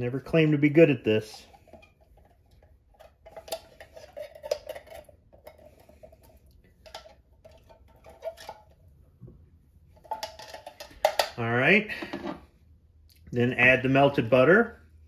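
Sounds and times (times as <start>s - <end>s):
spatula scraping tin can: 1.2s - 8.8s.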